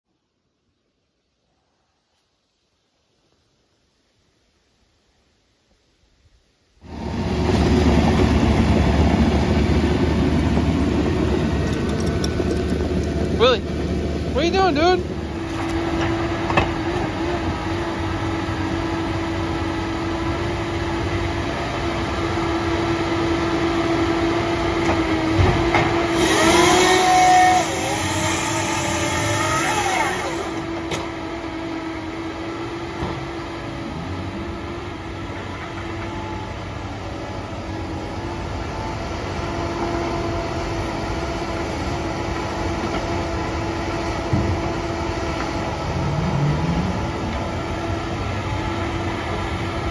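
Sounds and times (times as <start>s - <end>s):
log loader hydraulic whine: 6.8s - 49.9s
hydraulic hiss: 26.1s - 30.6s.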